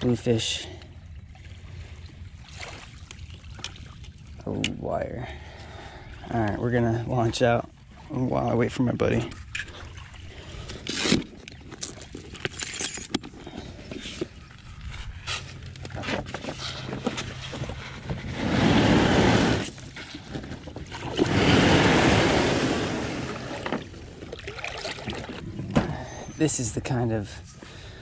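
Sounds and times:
kayak hull scraping over sand: 13.6 - 24.0.

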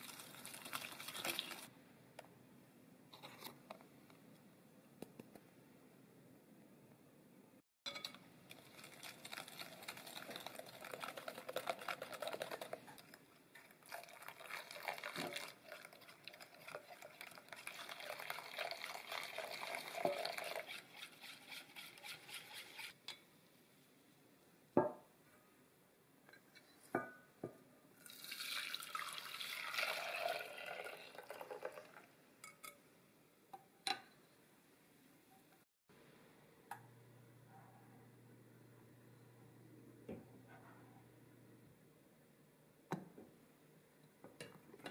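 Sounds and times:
liquid pouring into saucepan: 0.0 - 1.7, 8.5 - 22.7, 28.0 - 32.1
whisk scraping glass bowl: 9.0 - 23.1.

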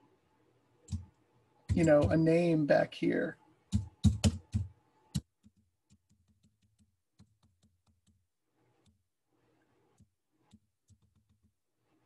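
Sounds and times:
keyboard and mouse clicking: 0.8 - 2.2.

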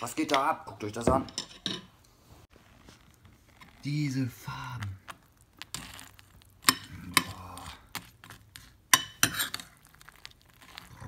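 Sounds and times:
spoon stirring cereal in milk: 3.1 - 11.0.

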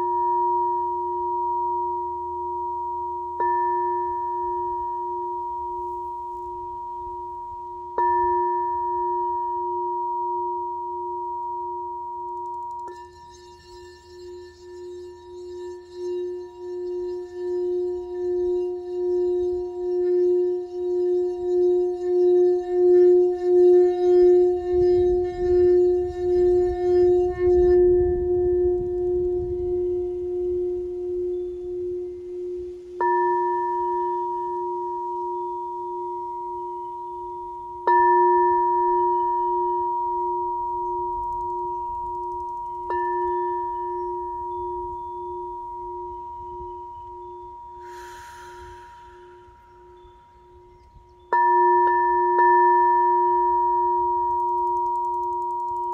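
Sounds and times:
singing bowl tone: 0.0 - 55.9
wand rubbing buzz: 22.0 - 28.0, 47.8 - 50.0
short hiss: 47.8 - 50.4.

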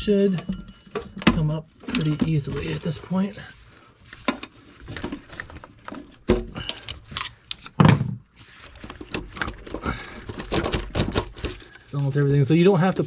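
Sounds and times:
valve cover clattering and knocking: 9.1 - 11.6.

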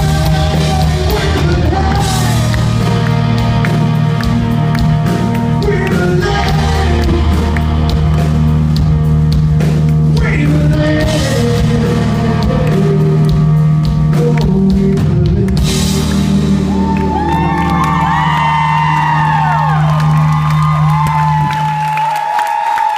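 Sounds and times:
person singing: 0.0 - 3.5, 5.1 - 8.3, 10.1 - 19.3
electric guitar: 0.0 - 22.1
rock band playing: 0.0 - 22.4.

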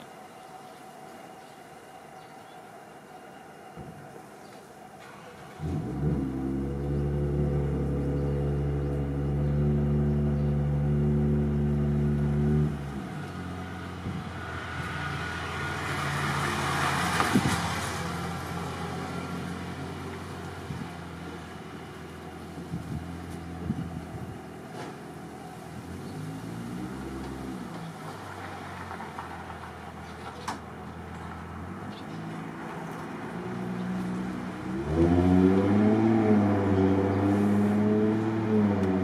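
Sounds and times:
passing vehicle: 4.7 - 39.0
vehicle engine idling: 5.0 - 16.0, 18.0 - 34.7.

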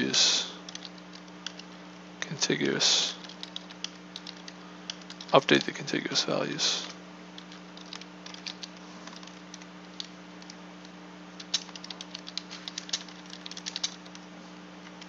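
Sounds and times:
steady low hum: 0.0 - 15.0
keyboard keystroke clicks: 0.7 - 1.7, 3.2 - 5.8, 7.4 - 10.6, 11.4 - 14.2.

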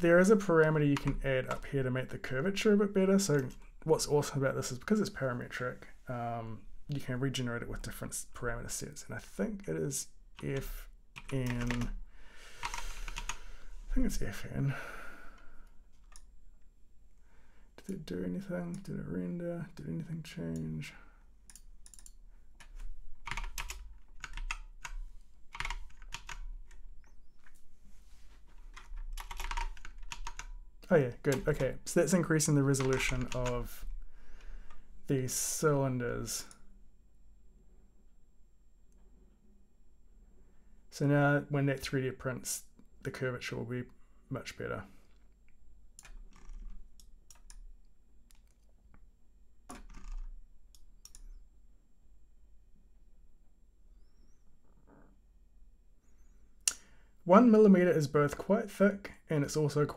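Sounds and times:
low steady hum: 0.0 - 59.9
typing on computer keyboard: 21.5 - 26.8, 28.7 - 30.6, 32.8 - 33.5.

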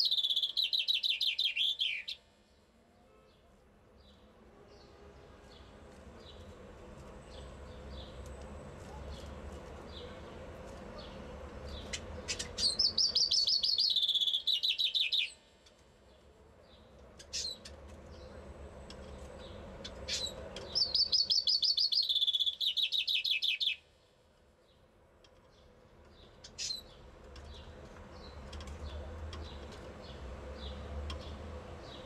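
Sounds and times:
chaffinch singing: 0.0 - 2.2, 11.0 - 15.4, 16.1 - 23.9, 25.5 - 32.0.

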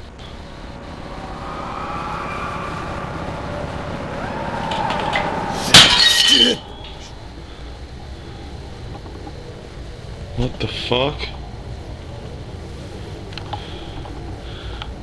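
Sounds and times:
faint wavering tones: 0.0 - 10.3
loud crash of something breaking: 4.3 - 7.1.

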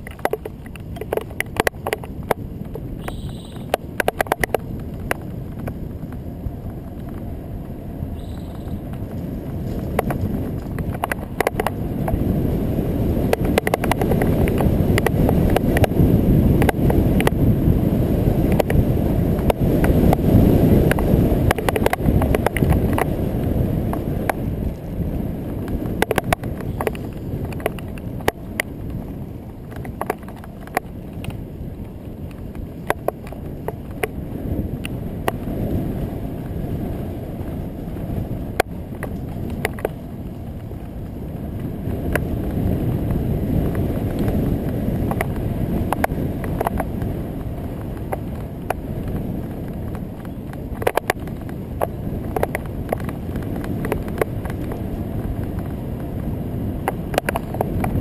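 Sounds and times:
wind rumbling over microphone: 0.0 - 58.0.

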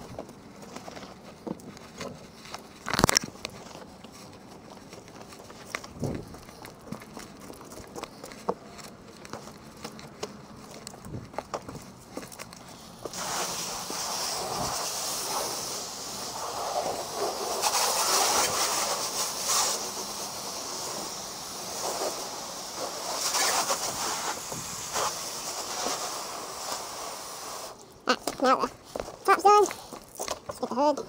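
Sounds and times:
hose water spraying on car: 13.0 - 27.8.

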